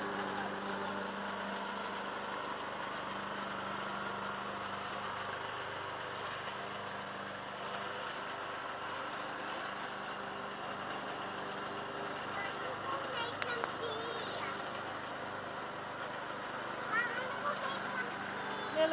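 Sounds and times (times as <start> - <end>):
riding lawn mower engine running: 0.0 - 18.9.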